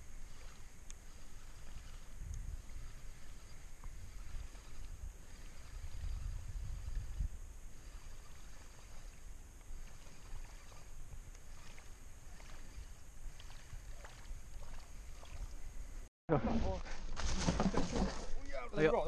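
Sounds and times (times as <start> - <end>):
wind rumble on microphone: 0.0 - 16.0
faint water sounds: 0.0 - 16.7
faint light ticks: 0.8 - 1.0.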